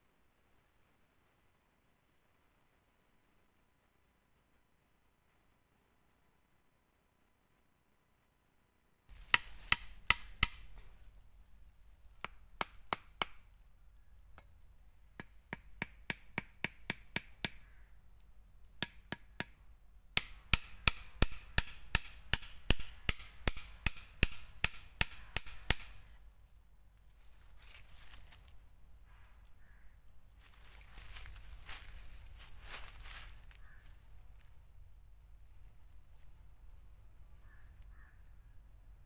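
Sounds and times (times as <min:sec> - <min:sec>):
machete knocking on wooden stake: 0:09.1 - 0:10.9, 0:12.2 - 0:13.4, 0:15.2 - 0:17.8, 0:18.8 - 0:19.6, 0:20.2 - 0:26.1.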